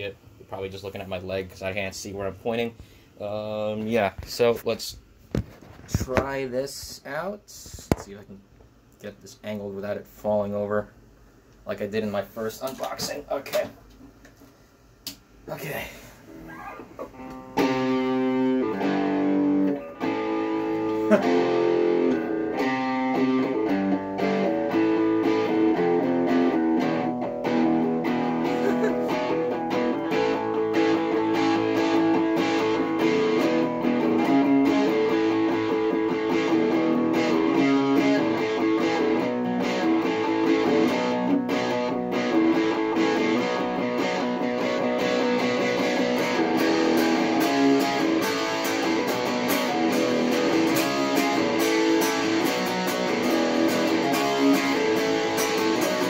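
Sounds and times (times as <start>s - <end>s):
electric guitar chords strummed: 17.0s - 56.0s.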